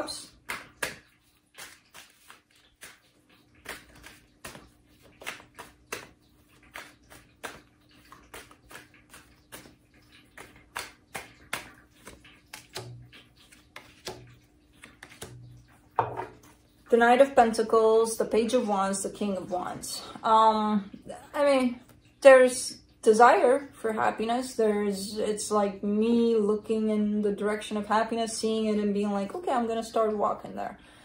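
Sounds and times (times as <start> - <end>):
cards being shuffled: 0.4 - 15.4.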